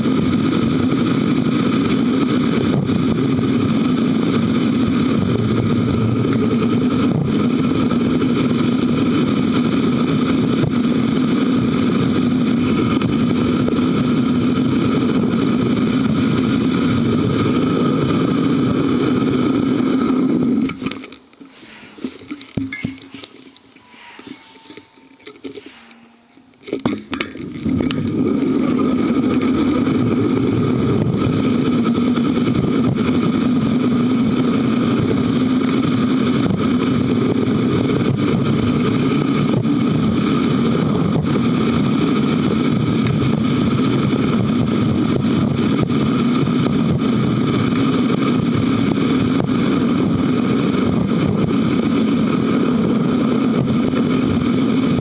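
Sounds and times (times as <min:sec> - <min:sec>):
wind and tyre noise: 0:00.0 - 0:55.0.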